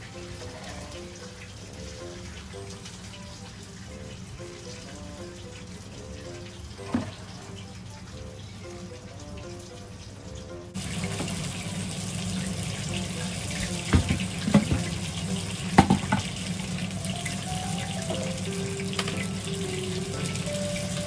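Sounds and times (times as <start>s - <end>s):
water running from tap: 0.0s - 21.0s.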